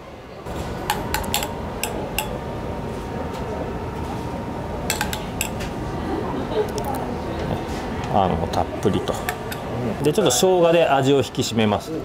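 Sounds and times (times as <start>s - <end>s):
room hum: 0.0s - 12.0s
metal spoon clinking on saucepan: 0.8s - 2.4s, 4.9s - 5.6s.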